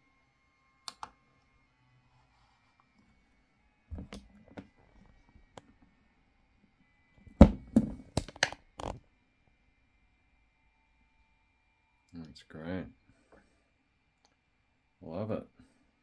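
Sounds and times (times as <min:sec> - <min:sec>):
plastic knocks and clicks: 0:03.9 - 0:04.7, 0:07.4 - 0:09.0.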